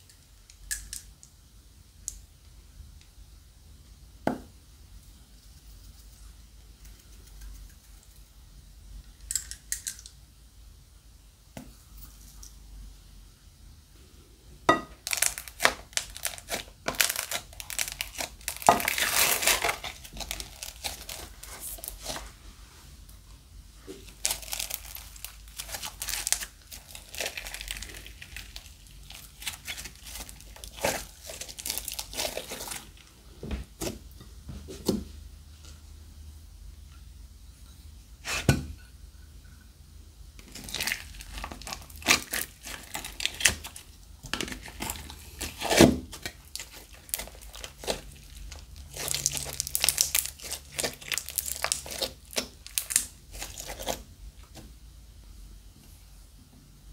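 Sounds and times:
slime crackling and tearing: 15.0s - 22.3s, 24.1s - 33.0s, 40.4s - 54.1s.

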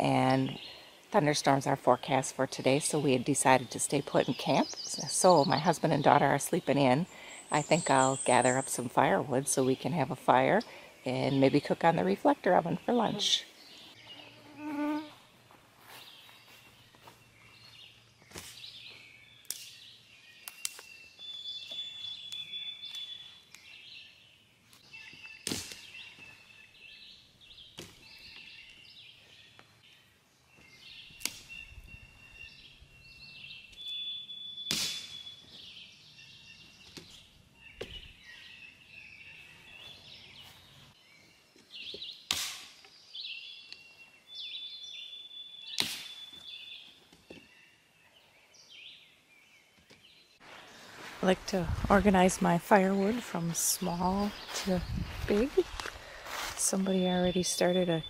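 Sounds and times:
birds singing: 0.0s - 15.2s, 15.8s - 58.0s
twigs snapping: 19.4s - 19.8s, 20.4s - 20.9s.

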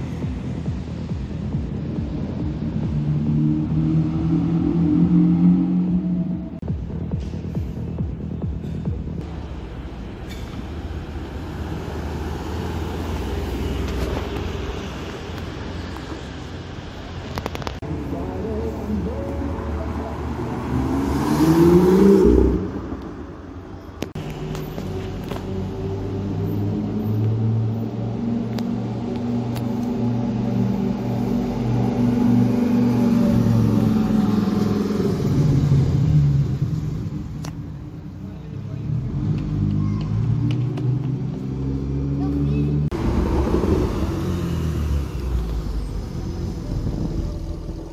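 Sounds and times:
car driving past: 19.0s - 23.2s, 38.7s - 47.9s.

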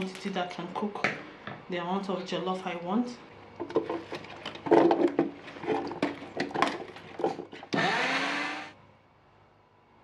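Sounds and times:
blender motor whining: 7.7s - 8.8s.

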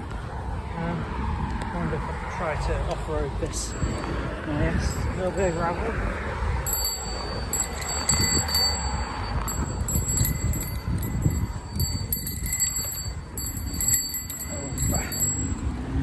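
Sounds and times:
bicycle bell pinging: 3.6s - 16.0s.

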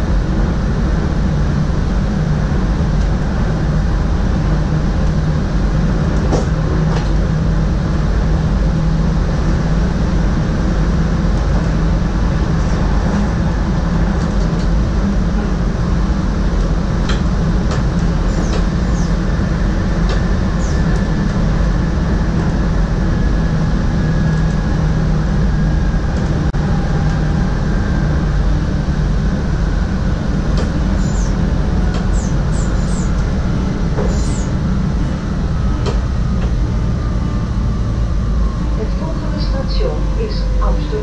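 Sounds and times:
train rumbling on track: 0.0s - 41.0s.

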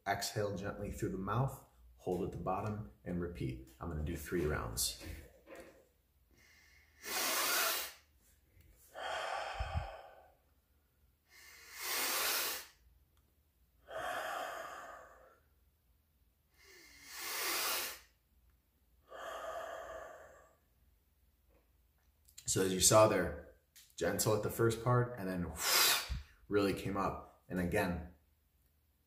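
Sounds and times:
man inhaling deeply: 8.8s - 10.5s, 13.8s - 15.5s, 19.0s - 20.7s.

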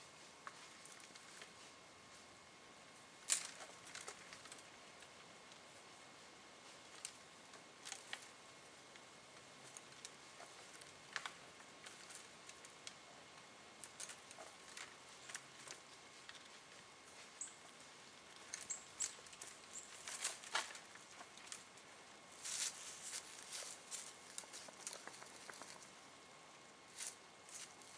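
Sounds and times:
twigs rustling and clicking: 0.4s - 1.7s, 3.2s - 5.6s, 6.9s - 13.0s, 13.8s - 26.0s.

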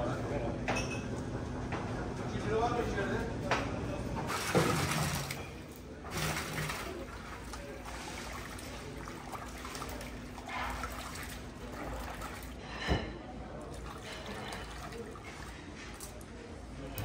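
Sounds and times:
hands sloshing tomatoes in water: 4.3s - 12.6s, 13.6s - 17.0s
water pouring into pot: 13.6s - 15.7s.

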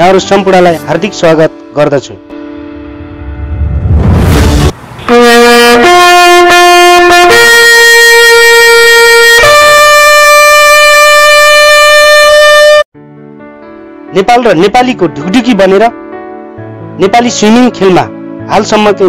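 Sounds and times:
loud crash-like hit: 2.9s - 5.1s
brass fanfare: 4.3s - 12.9s.

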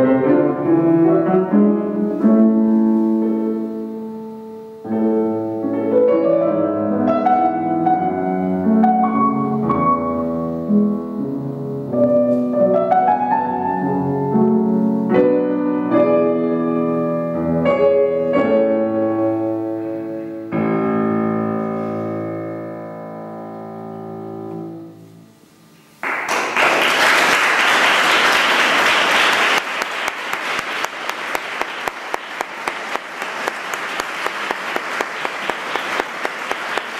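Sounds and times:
piano chords: 0.0s - 26.1s
audience applause: 26.0s - 36.9s
rhythmic clapping: 26.0s - 36.9s.

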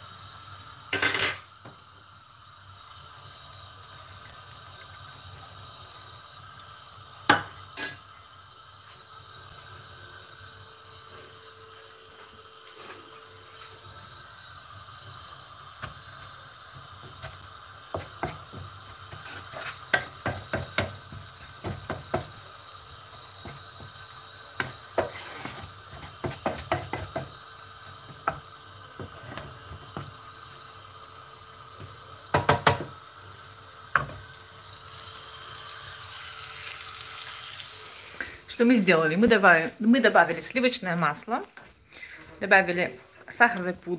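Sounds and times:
faint steady hiss: 0.0s - 43.9s
spatula scraping frying pan: 17.1s - 22.4s, 24.5s - 27.4s.

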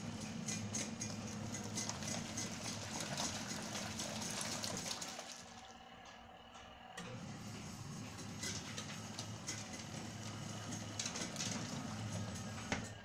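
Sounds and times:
washing machine motor hum: 0.0s - 13.0s
water churning and sloshing: 0.7s - 5.9s.

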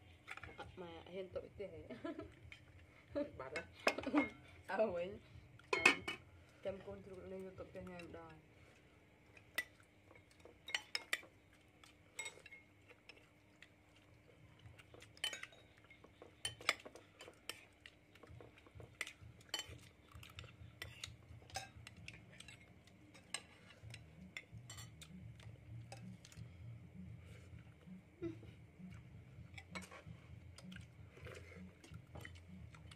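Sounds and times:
metal spoons clinking on plates: 3.5s - 4.4s, 5.7s - 6.2s, 10.6s - 11.3s, 12.1s - 13.2s, 15.1s - 17.7s, 19.0s - 25.2s, 29.6s - 30.7s.

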